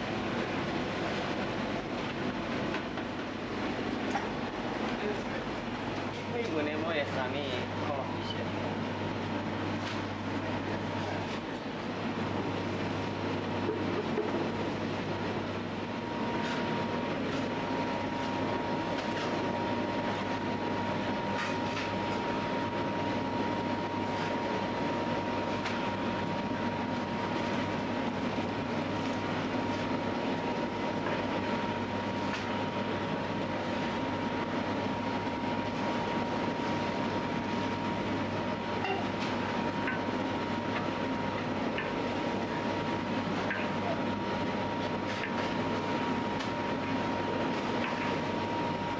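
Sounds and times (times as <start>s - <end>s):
dough-kneading machine hum: 0.0s - 48.9s
thin steady machine whine: 0.0s - 48.9s.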